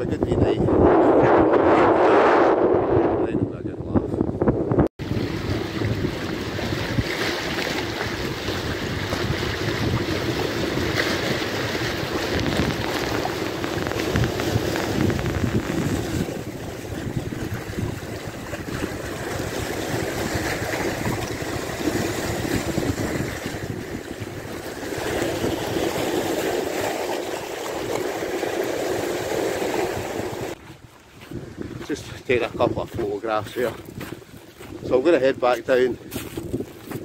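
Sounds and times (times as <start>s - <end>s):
wind buffeting microphone: 0.0s - 37.0s
waves washing over rocks: 5.0s - 30.6s.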